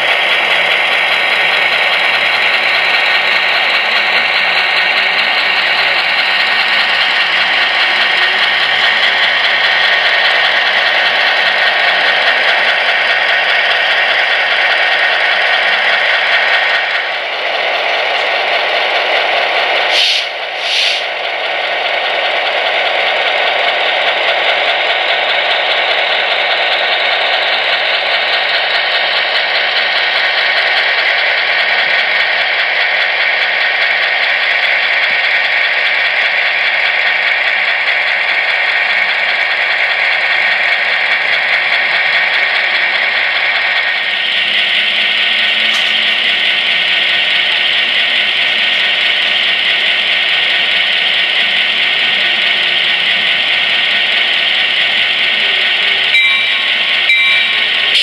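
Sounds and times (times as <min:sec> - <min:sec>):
tinny diesel engine sound: 0:00.0 - 0:58.0
hissing bursts: 0:19.9 - 0:21.2.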